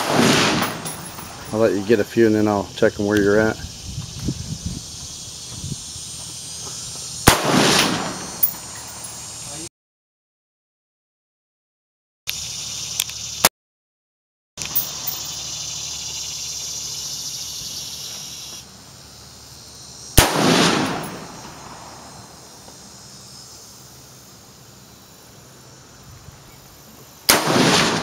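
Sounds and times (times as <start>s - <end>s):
rifle shot with echo: 0.0s - 1.4s, 7.3s - 8.6s, 20.2s - 22.1s, 27.3s - 28.0s
high insect buzz: 0.4s - 9.7s, 12.3s - 13.5s, 14.6s - 28.0s.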